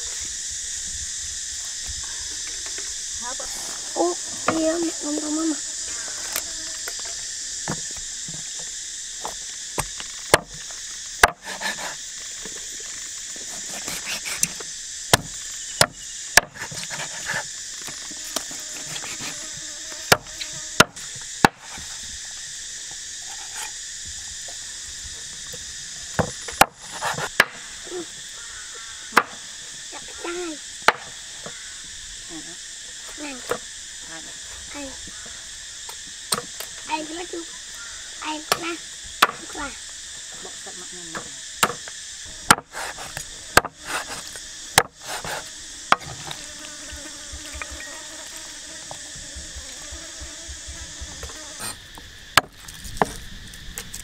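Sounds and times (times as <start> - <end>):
high drone of insects: 0.0 - 54.0
sharp chopping strikes: 11.2 - 12.0, 13.7 - 17.2, 20.1 - 21.8.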